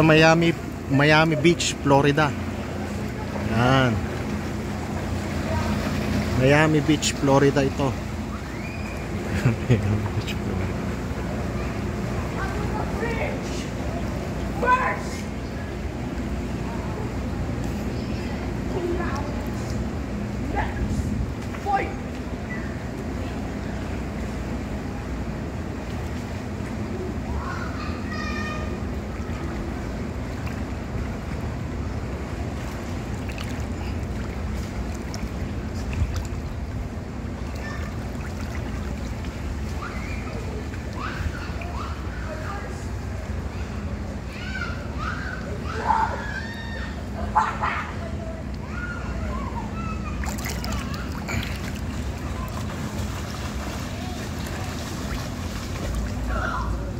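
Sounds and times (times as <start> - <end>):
pool water lapping: 0.0 - 56.9
faint voices: 37.0 - 56.9.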